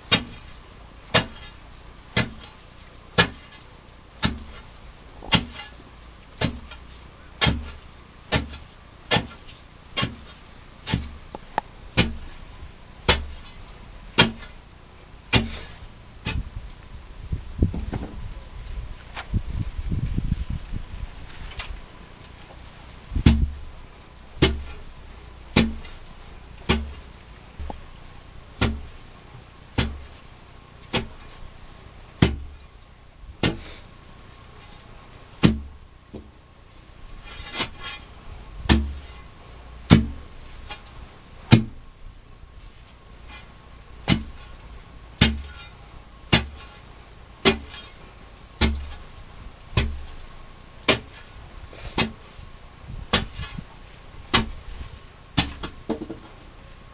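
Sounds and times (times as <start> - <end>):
digging tool striking ground: 0.0 - 14.7, 15.3 - 16.6, 23.2 - 23.7, 24.4 - 27.8, 28.6 - 29.0, 29.7 - 30.3, 30.9 - 31.4, 32.2 - 32.6, 33.4 - 33.8, 35.4 - 36.3, 37.2 - 39.3, 39.9 - 41.8, 42.7 - 44.6, 45.2 - 48.0, 48.6 - 52.4, 53.1 - 54.8, 55.4 - 56.4.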